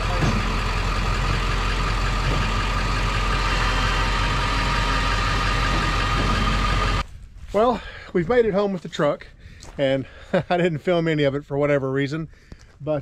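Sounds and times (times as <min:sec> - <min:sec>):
vehicle engine running: 0:00.0 - 0:07.0.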